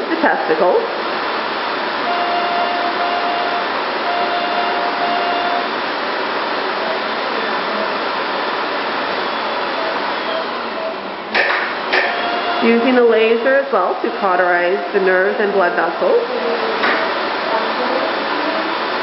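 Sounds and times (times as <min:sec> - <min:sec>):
faint tone: 0:02.1 - 0:05.7.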